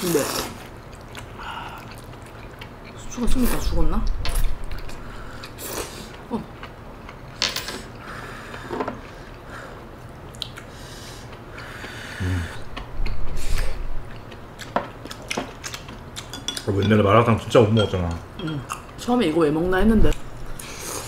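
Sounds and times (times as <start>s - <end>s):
slurping and chewing: 0.1s - 3.1s.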